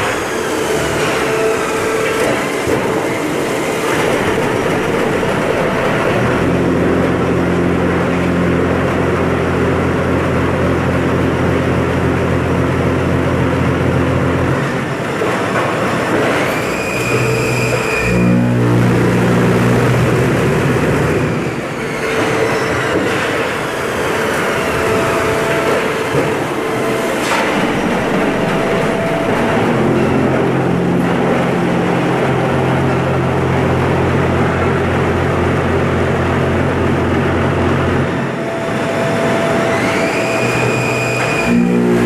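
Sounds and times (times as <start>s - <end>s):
loud machinery din: 0.0s - 42.0s
motor hum: 17.0s - 22.3s, 23.9s - 42.0s
motor whine: 24.1s - 34.1s, 37.2s - 42.0s.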